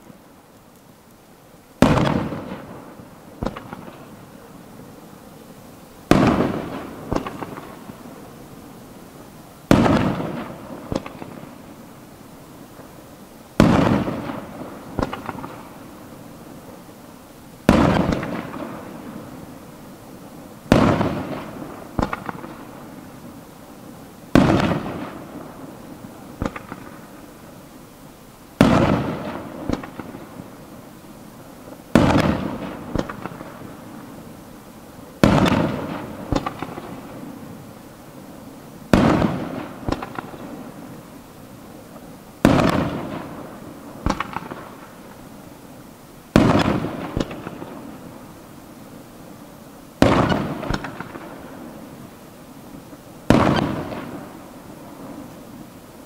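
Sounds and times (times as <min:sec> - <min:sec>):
sharp firework cracks: 0:01.8 - 0:04.3, 0:06.0 - 0:08.4, 0:09.6 - 0:12.1, 0:13.6 - 0:16.2, 0:17.6 - 0:19.8, 0:20.6 - 0:23.4, 0:24.3 - 0:27.6, 0:28.6 - 0:31.0, 0:31.6 - 0:34.3, 0:35.2 - 0:37.7, 0:38.8 - 0:41.2, 0:41.8 - 0:45.4, 0:46.3 - 0:48.7, 0:50.0 - 0:52.0, 0:52.9 - 0:55.7.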